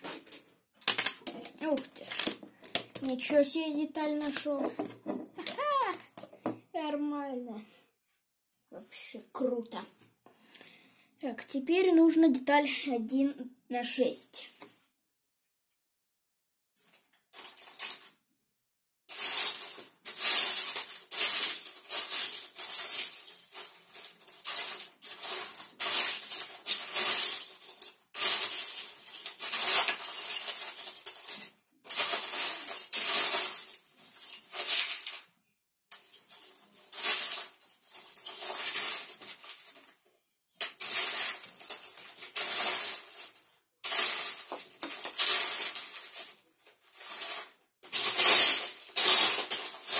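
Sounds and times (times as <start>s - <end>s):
plastic bricks clattering: 0.0s - 6.6s.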